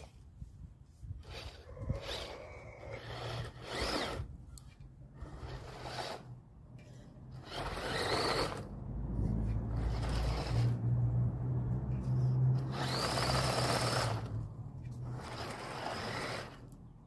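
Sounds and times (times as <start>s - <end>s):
tyres scrabbling in loose dirt: 1.2s - 8.7s, 12.6s - 16.7s
toy car motor whirring: 1.2s - 8.8s, 9.5s - 10.9s, 12.6s - 16.8s
low motor hum: 1.3s - 16.8s.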